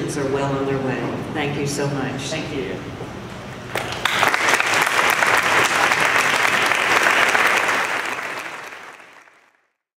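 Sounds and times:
people applauding: 0:03.7 - 0:09.8.

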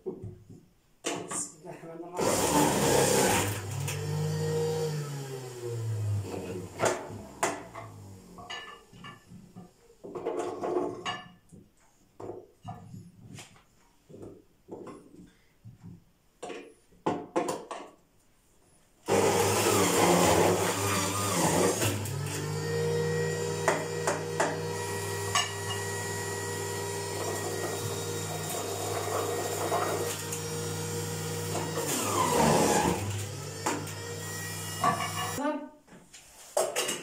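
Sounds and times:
juicer motor humming: 0:02.2 - 0:08.5, 0:19.1 - 0:35.4
juicer grinding carrots: 0:02.2 - 0:08.6, 0:19.1 - 0:35.4.

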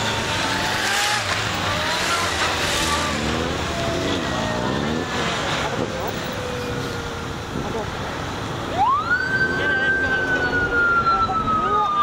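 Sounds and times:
motorcycles riding past: 0:00.0 - 0:06.8.

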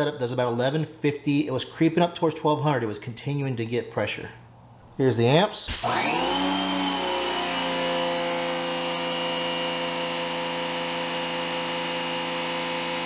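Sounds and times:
pressure washer motor whine: 0:05.7 - 0:13.0.

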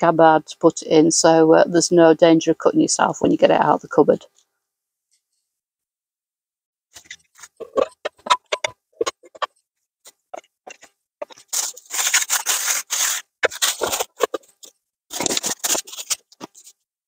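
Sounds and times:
plastic bag crinkling: 0:10.3 - 0:16.8.

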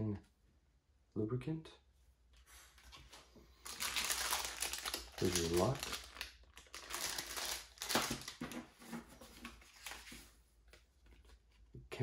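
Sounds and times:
plastic bag crinkling: 0:03.6 - 0:08.6.

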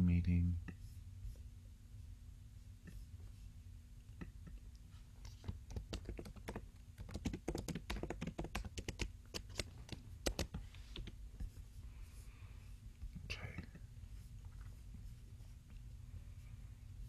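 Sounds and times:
keyboard typing: 0:05.2 - 0:11.2.

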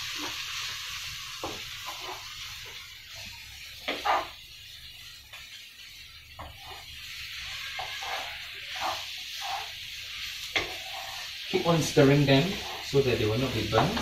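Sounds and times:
onions sizzling in a frying pan: 0:00.0 - 0:14.0
wooden spatula scraping a pan: 0:01.4 - 0:02.8, 0:03.8 - 0:04.4, 0:06.3 - 0:14.0.

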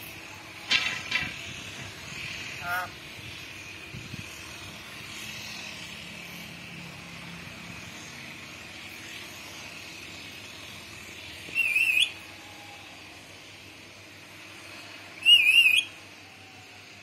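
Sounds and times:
parakeet warbling whistle: 0:02.6 - 0:02.9, 0:11.5 - 0:12.2, 0:15.2 - 0:15.9.

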